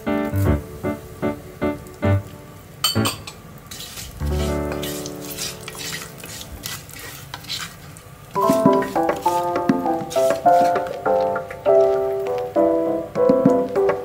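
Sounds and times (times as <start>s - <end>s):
leaves sizzling in hot oil: 0.0s - 12.5s
light background music: 8.4s - 14.0s.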